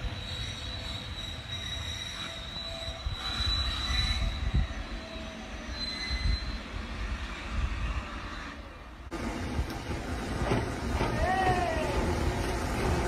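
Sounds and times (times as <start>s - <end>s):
wheel squeals: 0.0s - 8.7s
train wheels rumbling on track: 0.0s - 13.0s.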